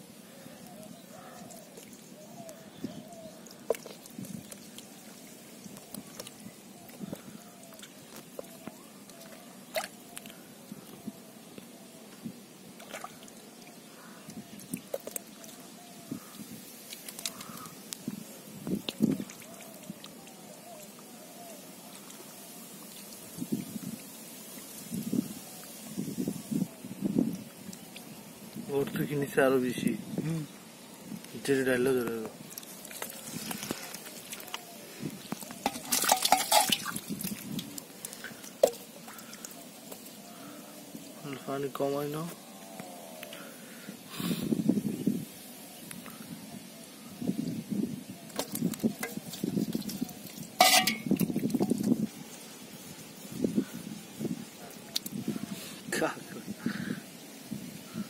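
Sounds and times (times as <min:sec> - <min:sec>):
small splashes: 0:12.8 - 0:17.7, 0:32.4 - 0:34.7, 0:35.4 - 0:40.3
wet clicks: 0:16.9 - 0:18.1, 0:54.9 - 0:55.2
hand squelching through wet mud: 0:32.5 - 0:40.2
hand sloshing in muddy water: 0:35.6 - 0:37.8.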